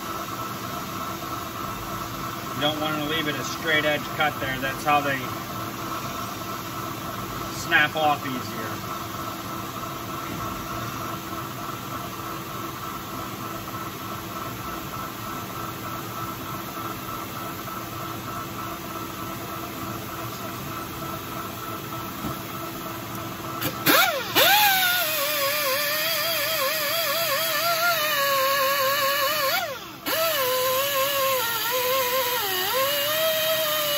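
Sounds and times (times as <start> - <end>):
wavering whine: 23.5 - 33.9
metal lathe humming: 23.6 - 33.9.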